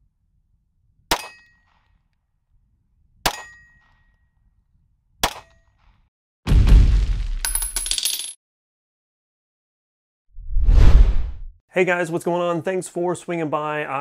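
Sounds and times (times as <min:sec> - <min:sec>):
pistol shots with metallic ring: 0:01.1 - 0:01.7, 0:03.3 - 0:04.1.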